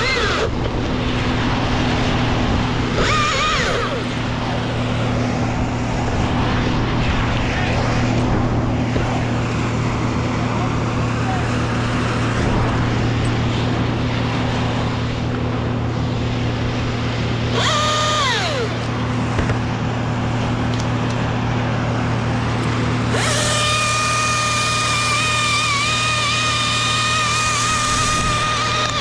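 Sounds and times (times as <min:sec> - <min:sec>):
battery chainsaw whining: 0:00.0 - 0:00.6, 0:02.9 - 0:04.2, 0:17.5 - 0:19.5, 0:23.0 - 0:29.0
constant low hum: 0:00.0 - 0:29.0.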